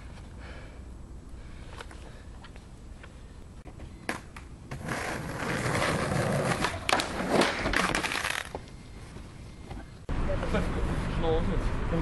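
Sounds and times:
skateboard rolling over asphalt: 4.1 - 8.6
skateboard clacks: 6.4 - 8.6.

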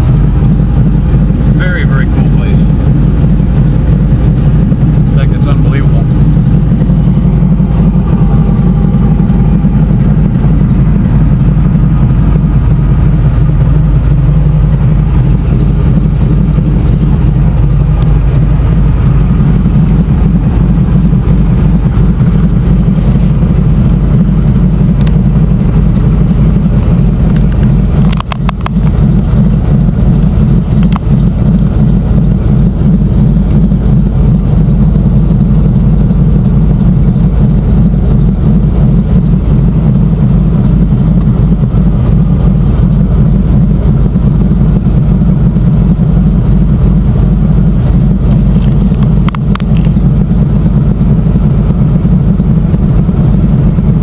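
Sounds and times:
airplane engine and propeller: 0.0 - 54.0
clicks: 27.3 - 28.8, 48.6 - 50.0.

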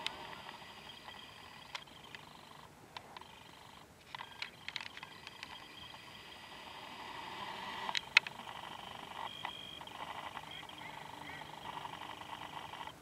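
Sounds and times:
camera zoom motor whine: 0.0 - 13.0.

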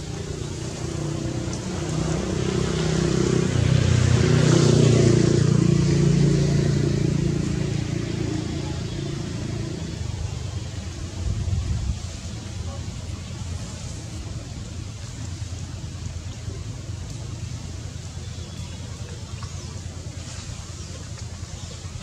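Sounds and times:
vehicle engine passing by: 0.0 - 22.0.

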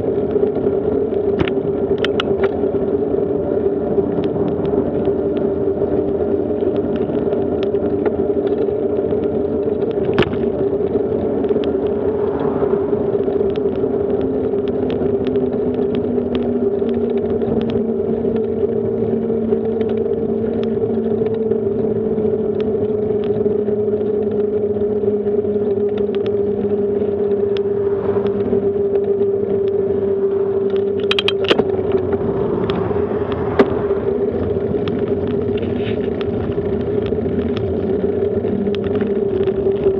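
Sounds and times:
bicycle rolling on asphalt: 0.0 - 39.9
low hum sinking in pitch: 2.6 - 16.8, 24.9 - 35.6
car passing: 3.1 - 6.5, 10.4 - 15.6, 26.5 - 37.0
rushing noise: 11.3 - 14.3.

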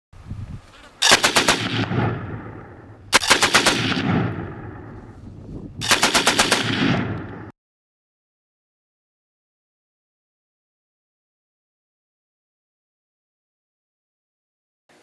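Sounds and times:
machine gun bursts echoing: 1.0 - 4.9, 5.8 - 7.5.

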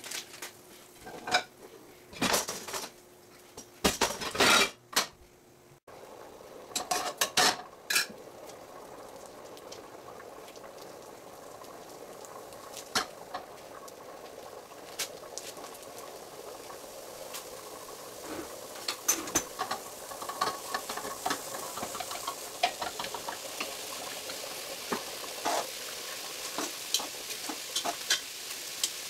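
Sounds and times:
stovetop hiss: 0.0 - 29.0
pots and pans clinking: 1.0 - 2.9, 3.6 - 5.2, 6.7 - 8.2, 12.8 - 13.5, 18.2 - 25.7, 26.4 - 29.0.

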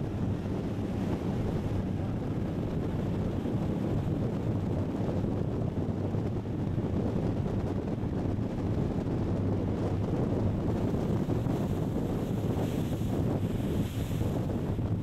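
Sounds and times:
low boat engine drone: 0.0 - 15.0
wind on microphone: 0.0 - 15.0
water rushing past hull: 10.4 - 15.0.

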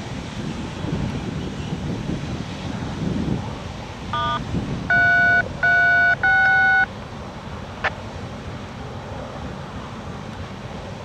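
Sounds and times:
wind noise on microphone: 0.0 - 11.0
brief electronic chirp: 4.2 - 6.9
keypad beeps: 4.2 - 6.9.

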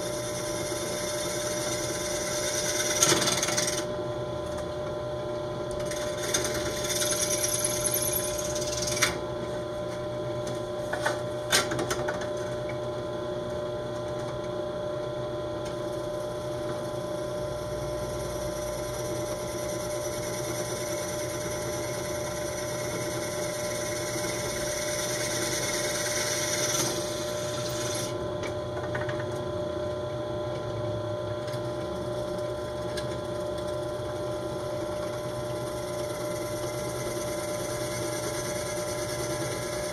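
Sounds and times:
drill bit cutting fiberglass: 0.0 - 3.9, 5.8 - 9.2, 17.8 - 28.5, 35.1 - 39.9
drill press motor humming: 0.0 - 39.9.

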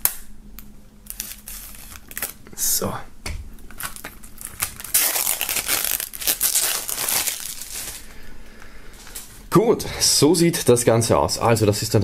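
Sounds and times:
plastic wrap crinkling and tearing: 1.0 - 2.6, 3.7 - 8.2.

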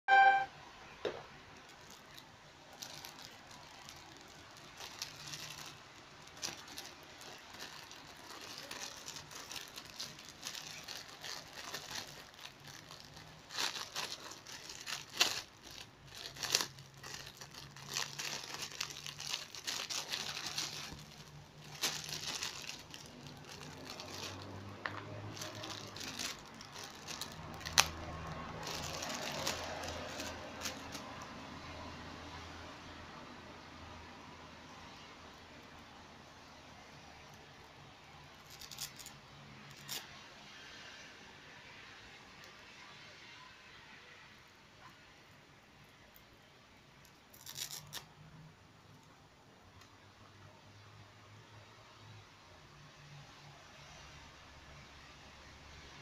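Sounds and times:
plastic bag crinkling: 0.1 - 0.5, 1.1 - 31.5, 38.3 - 40.2, 47.1 - 48.1.

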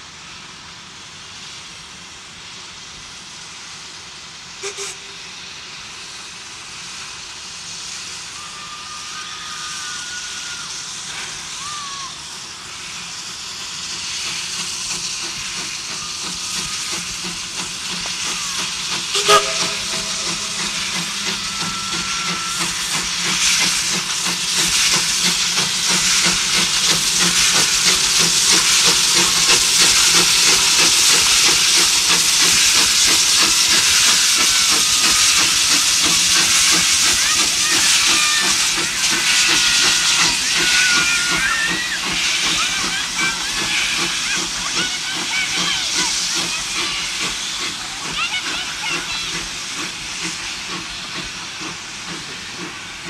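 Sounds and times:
steam locomotive exhaust: 0.0 - 53.0
sharp whistle blast: 19.0 - 23.1.

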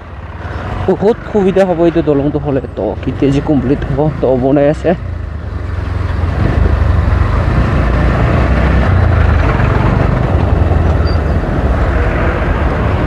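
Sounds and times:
motorcycle engine running: 3.0 - 11.1
wind noise on microphone: 6.2 - 7.9.

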